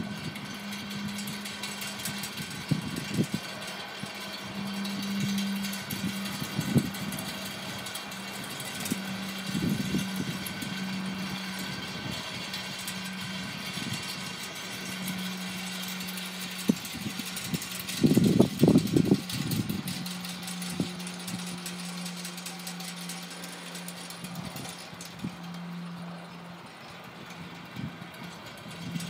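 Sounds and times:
wind gusting against microphone: 0.0s - 21.8s
low hum: 0.0s - 29.0s.

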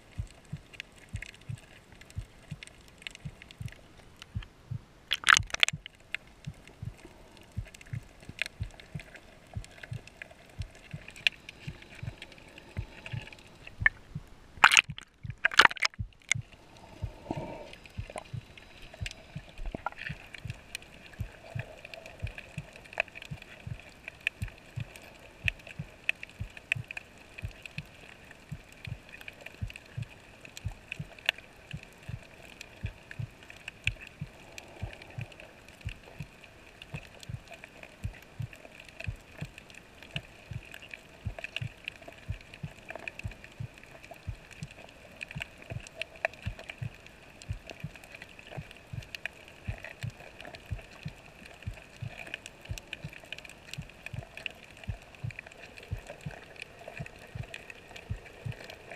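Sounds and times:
faint clicks: 0.1s - 4.5s, 5.1s - 58.9s
muffled underwater thumps: 0.2s - 20.6s
underwater hiss: 10.1s - 13.8s, 16.4s - 24.0s.

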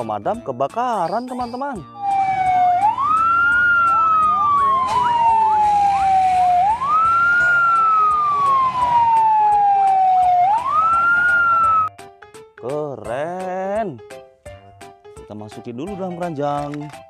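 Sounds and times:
faint fast sweeping siren: 2.0s - 11.9s
fire engine siren wailing: 2.0s - 11.9s.

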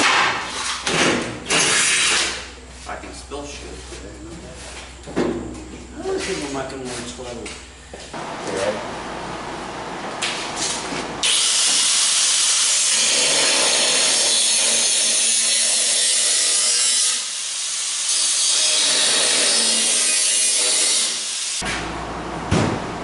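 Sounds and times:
angle grinder cutting steel: 11.2s - 21.6s.

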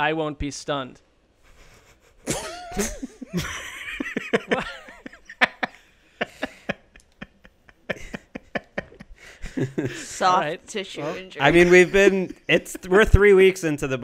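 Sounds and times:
people laughing: 1.5s - 10.2s, 11.0s - 13.0s.

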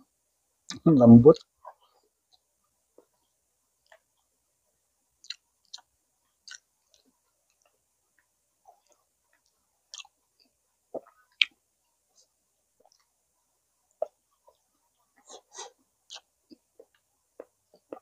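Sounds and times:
chewing food with mouth smacks: 3.8s - 4.3s, 5.2s - 13.2s, 13.9s - 18.0s.

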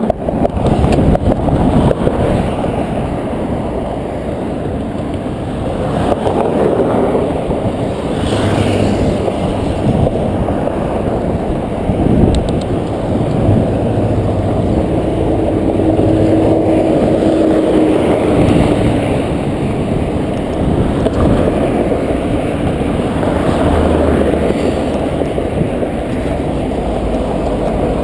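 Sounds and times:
bike tyres on concrete: 0.0s - 28.0s
wind buffeting microphone: 0.0s - 28.0s.

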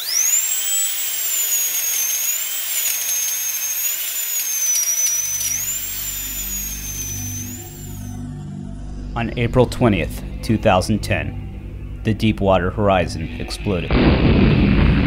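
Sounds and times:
high-pitched drill whine: 0.0s - 13.9s
low sustained music notes: 5.3s - 14.0s.

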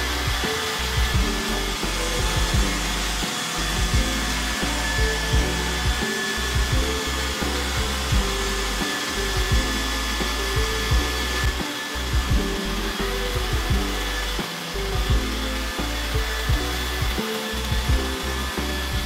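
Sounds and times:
robot vacuum whirring: 0.0s - 19.0s
thin high whine: 0.0s - 19.0s
low knocks: 5.0s - 8.3s.

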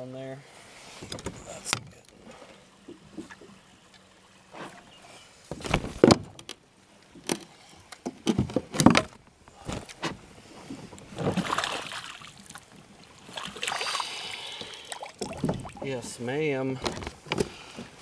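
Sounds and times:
net and rod bumping kayak: 0.9s - 18.0s
water splashing: 11.1s - 17.2s.

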